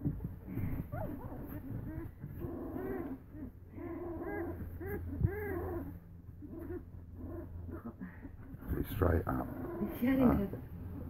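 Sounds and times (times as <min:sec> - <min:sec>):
puppies whining: 0:00.0 - 0:11.0.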